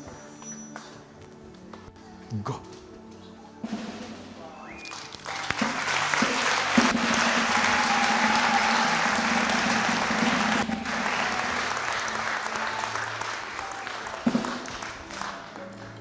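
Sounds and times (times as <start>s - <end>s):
crowd applauding: 4.6s - 16.0s.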